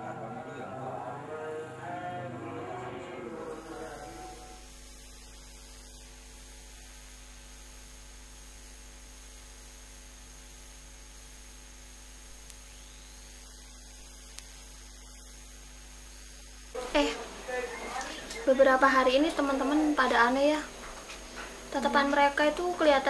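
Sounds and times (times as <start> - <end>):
electrical mains hum with hiss: 0.0 - 23.0
faint ticks: 12.4 - 12.8, 14.2 - 15.3.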